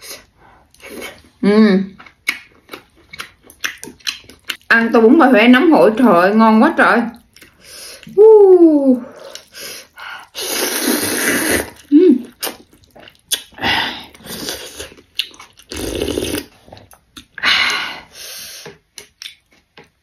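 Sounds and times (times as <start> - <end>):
person slurping noodles: 10.3 - 11.9, 13.6 - 15.0, 15.7 - 16.6.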